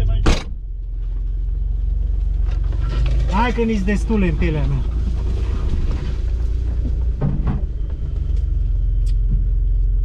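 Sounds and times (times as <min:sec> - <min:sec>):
vehicle engine running low: 0:00.0 - 0:10.0
vehicle knocking over bumps: 0:02.4 - 0:09.7.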